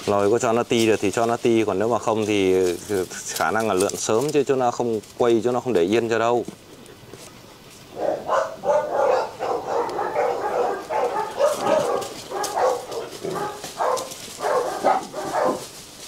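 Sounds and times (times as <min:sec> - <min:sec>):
puppies yipping and barking: 0:07.9 - 0:16.0.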